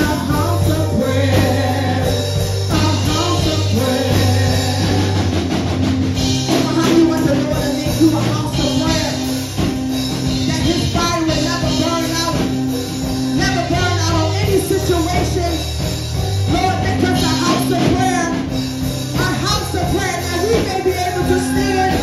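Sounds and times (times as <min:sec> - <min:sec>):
person singing: 0:00.0 - 0:05.7, 0:19.2 - 0:22.0
church band music: 0:00.0 - 0:22.0
long held bass notes: 0:00.0 - 0:22.0.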